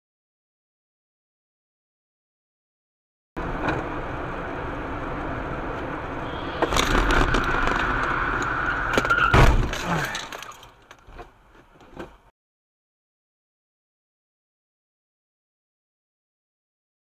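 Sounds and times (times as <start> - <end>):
car road noise: 3.4 - 12.3
high steady whine: 4.0 - 9.1
car crash: 6.1 - 11.2.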